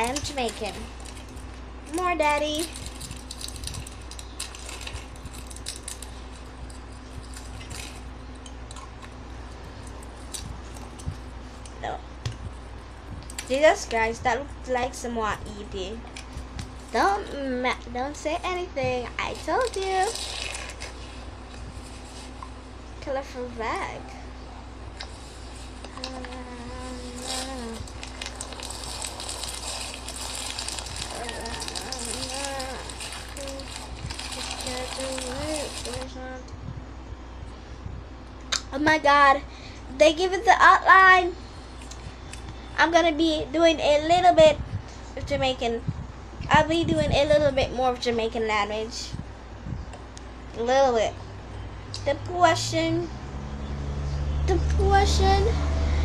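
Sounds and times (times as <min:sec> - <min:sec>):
crunchy slime crackling: 0:00.0 - 0:09.2, 0:19.1 - 0:22.4, 0:25.0 - 0:36.1
low steady hum: 0:00.0 - 0:56.0.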